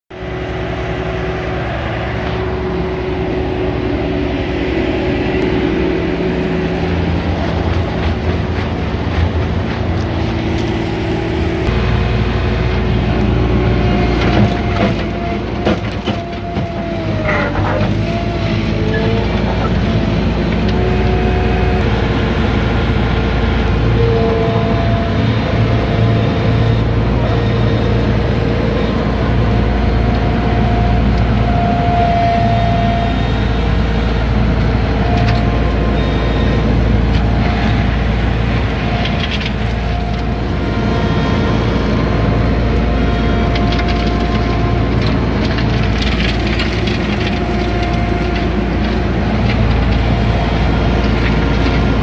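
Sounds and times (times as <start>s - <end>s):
diesel engine running: 0.1s - 52.0s
wavering whine: 0.2s - 15.6s.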